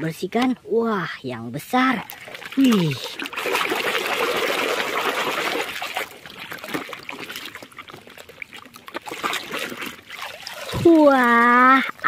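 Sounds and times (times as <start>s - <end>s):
water dribbling: 0.0s - 12.0s
hand splashing in water: 2.0s - 11.4s.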